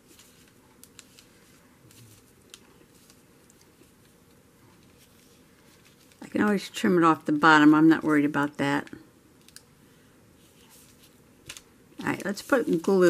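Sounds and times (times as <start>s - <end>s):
thread rustling: 10.4s - 13.0s.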